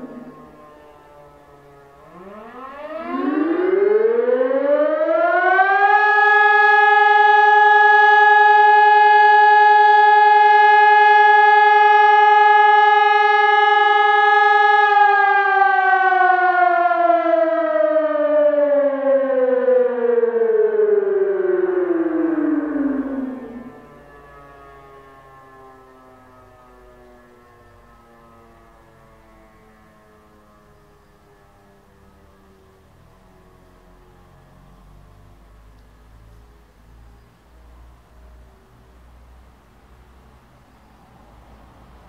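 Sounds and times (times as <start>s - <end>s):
electronic siren rising and falling: 0.0s - 27.0s.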